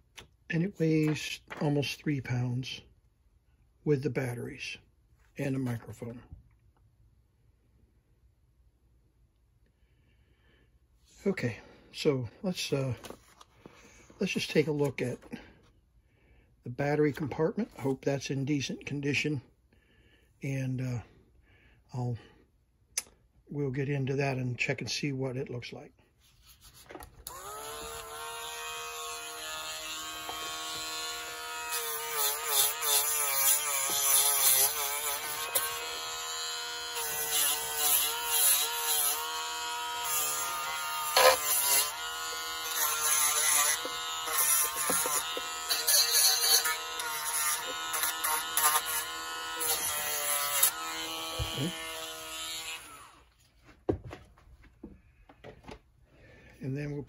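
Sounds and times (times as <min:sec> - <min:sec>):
rotary tool buzzing: 0:27.2 - 0:53.3
scratchy grinding on metal: 0:40.0 - 0:52.8.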